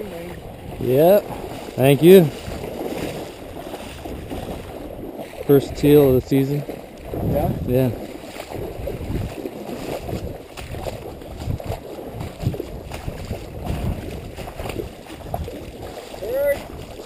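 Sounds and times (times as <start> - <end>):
sloshing steps in water: 0.1 - 17.0.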